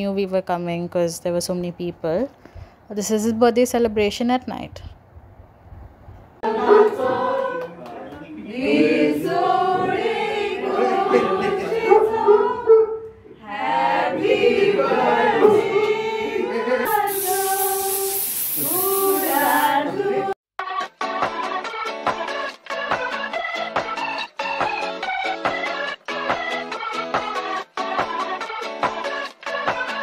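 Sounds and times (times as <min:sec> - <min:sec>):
group singing a celebration song: 0:06.4 - 0:20.4
loud hiss: 0:16.9 - 0:19.8.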